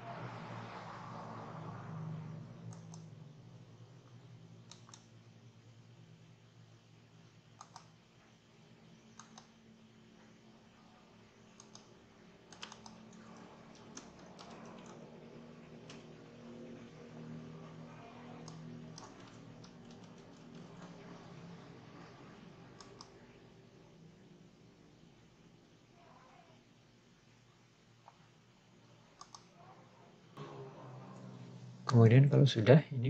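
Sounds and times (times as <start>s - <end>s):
faint low hum: 0.0s - 33.0s
mouse clicks: 2.7s - 3.0s, 4.7s - 5.1s, 7.6s - 8.0s, 9.1s - 9.6s, 11.6s - 11.9s, 12.5s - 13.0s, 22.8s - 23.1s, 29.2s - 29.5s
keyboard keystrokes: 7.6s - 7.9s, 12.5s - 15.0s, 18.4s - 20.8s.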